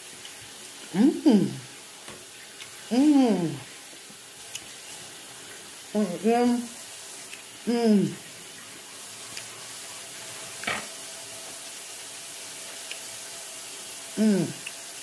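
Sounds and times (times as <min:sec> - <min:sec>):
steady hiss: 0:00.0 - 0:15.0
woman humming: 0:00.9 - 0:01.7, 0:02.9 - 0:03.6, 0:07.7 - 0:08.2, 0:14.2 - 0:14.7.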